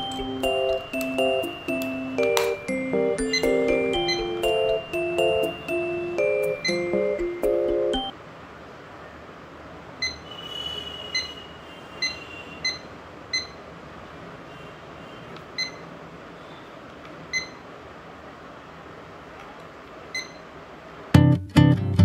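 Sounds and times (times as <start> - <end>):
digital clock beeping: 0.0 - 8.1, 12.0 - 13.6, 17.3 - 17.6, 20.2 - 20.4.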